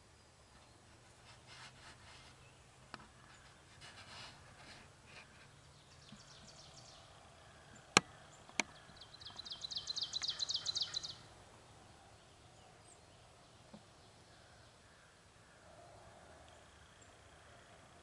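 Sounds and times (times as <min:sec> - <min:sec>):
songbird trilling: 0:05.8 - 0:13.8
sharp clicks: 0:07.9 - 0:09.4.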